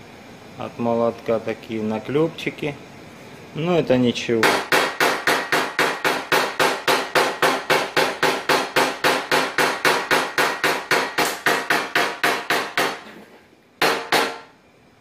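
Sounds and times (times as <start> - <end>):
hammer tapping metal punch: 4.4 - 13.2, 13.8 - 14.5.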